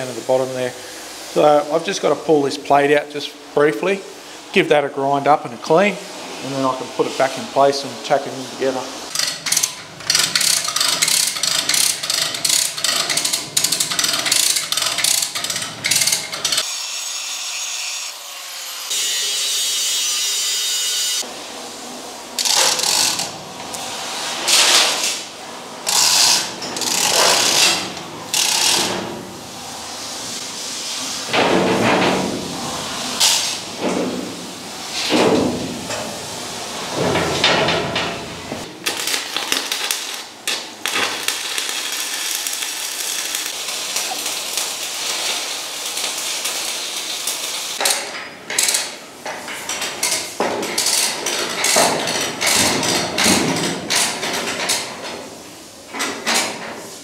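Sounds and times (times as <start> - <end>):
chain rattle and ratchet: 9.1 - 16.6
chain hoist clicking: 9.1 - 16.7, 25.9 - 28.9.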